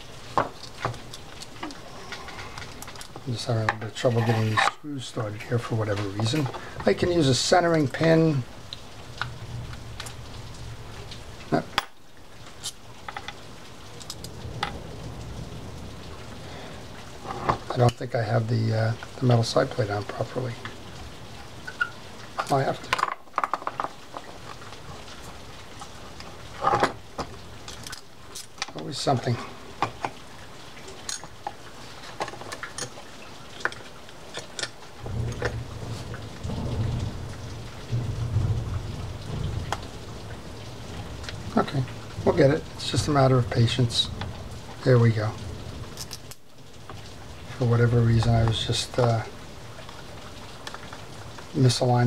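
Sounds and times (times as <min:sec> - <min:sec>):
small metal parts clicking: 0:45.9 - 0:46.4.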